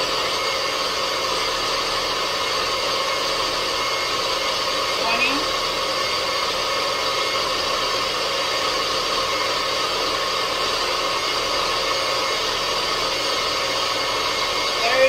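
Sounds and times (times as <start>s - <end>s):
blender motor whirring: 0.0s - 15.0s.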